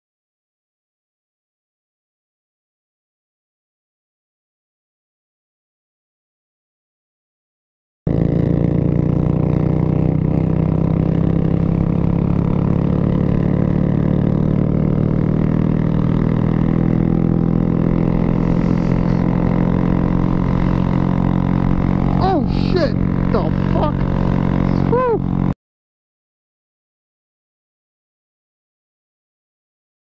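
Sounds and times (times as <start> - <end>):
motorcycle engine running: 8.1 - 25.6.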